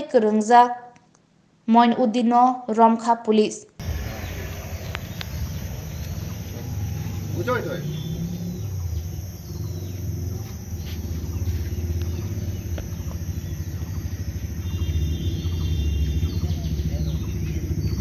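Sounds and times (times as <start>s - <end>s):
faint high chirps: 3.8s - 18.0s
vehicle engine idling: 3.8s - 18.0s.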